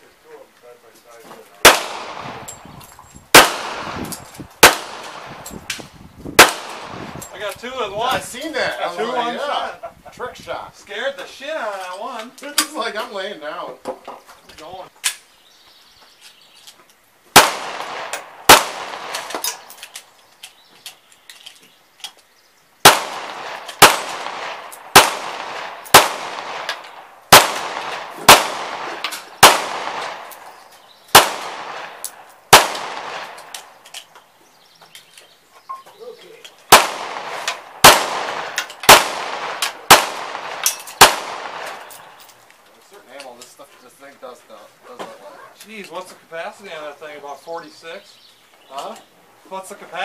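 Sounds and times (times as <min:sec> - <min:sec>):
pistol shots: 0:01.6 - 0:02.6, 0:03.3 - 0:05.8, 0:06.4 - 0:07.2, 0:17.3 - 0:19.7, 0:22.8 - 0:33.7, 0:36.7 - 0:42.2.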